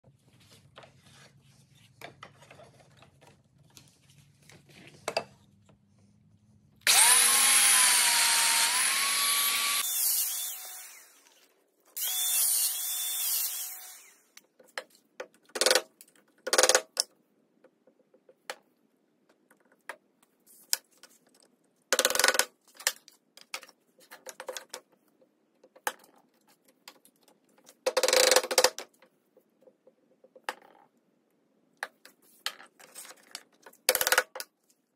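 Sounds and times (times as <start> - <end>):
power tool motor whine: 6.8 - 11.2, 12.0 - 14.3.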